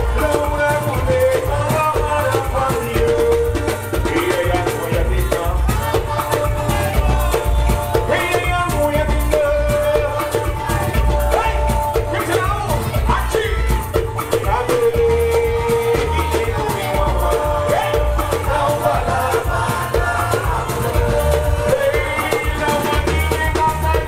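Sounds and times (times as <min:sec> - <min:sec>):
fast dense drumming: 0:00.0 - 0:24.0
live dance music through a pa: 0:00.0 - 0:24.0
person singing: 0:00.0 - 0:24.0.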